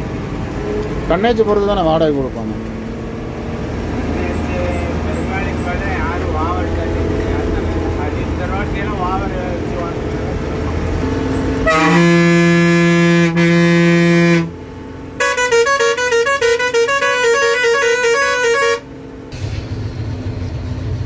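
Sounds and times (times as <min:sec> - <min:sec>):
bus engine running: 0:00.0 - 0:21.0
musical horn playing a tune: 0:11.6 - 0:14.6, 0:15.2 - 0:18.8
vehicle horn blast: 0:11.6 - 0:14.6, 0:15.2 - 0:18.8.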